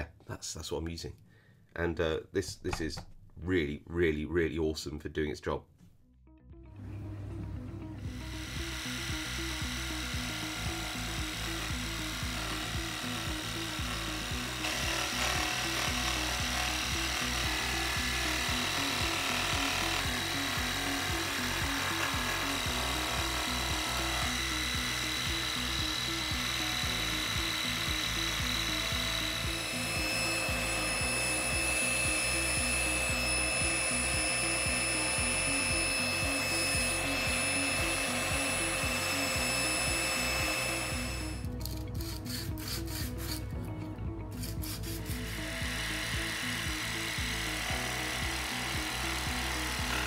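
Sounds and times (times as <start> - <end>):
scroll saw cutting wood: 8.0 - 43.7, 44.3 - 50.0
background music with beat: 14.6 - 50.0
wood being rubbed by hand: 42.0 - 43.6, 44.4 - 45.5.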